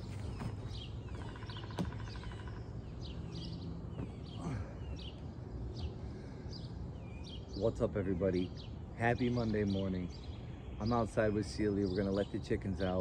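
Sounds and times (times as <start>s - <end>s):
low outdoor rumble: 0.0s - 13.0s
songbird chirping: 0.0s - 13.0s
rattling bird trill: 0.6s - 2.7s.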